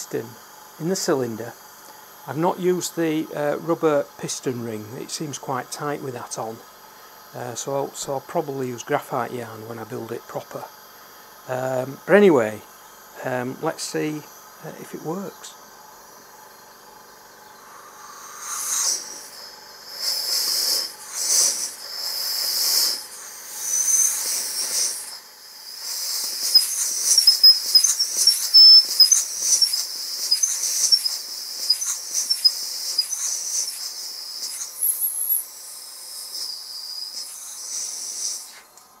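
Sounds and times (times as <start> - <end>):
compressed air hissing: 0.0 - 39.0
air puffs: 9.7 - 39.0
short squeaky chirps: 26.0 - 35.5.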